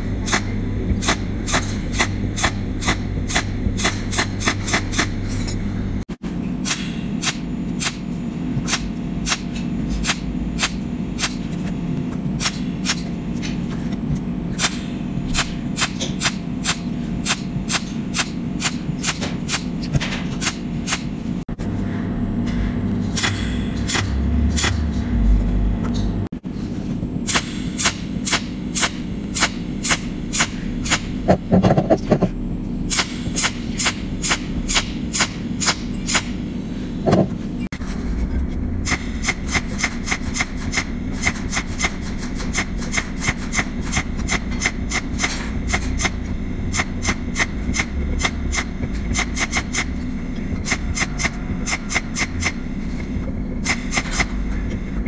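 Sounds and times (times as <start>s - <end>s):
welding machine pulse clicks: 0.0s - 5.6s, 6.6s - 11.6s, 14.5s - 21.2s, 22.5s - 25.2s, 27.3s - 31.4s, 32.9s - 36.4s, 38.8s - 52.8s, 53.6s - 54.9s
steady low hum: 0.0s - 55.0s.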